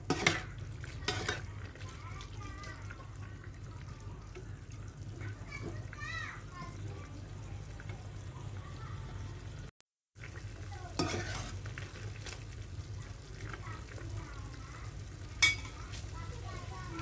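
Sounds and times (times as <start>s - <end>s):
metal spatula scraping pan: 0.0s - 1.5s, 11.0s - 11.6s
broth simmering: 0.0s - 17.0s.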